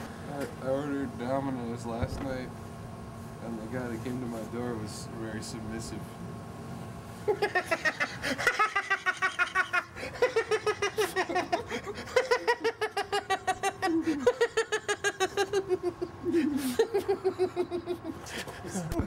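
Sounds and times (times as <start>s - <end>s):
person laughing hard: 7.3s - 18.6s.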